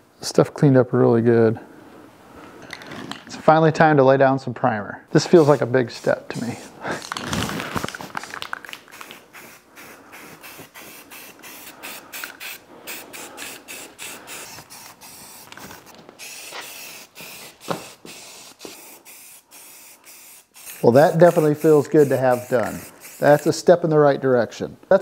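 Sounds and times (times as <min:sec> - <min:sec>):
spray paint can hissing: 0:05.3 - 0:06.7, 0:07.9 - 0:23.6.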